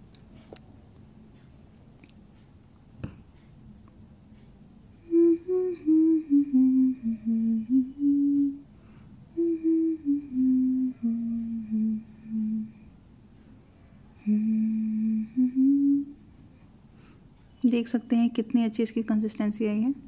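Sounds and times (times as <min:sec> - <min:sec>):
woman humming: 0:05.0 - 0:08.7, 0:09.3 - 0:12.9, 0:14.2 - 0:16.2.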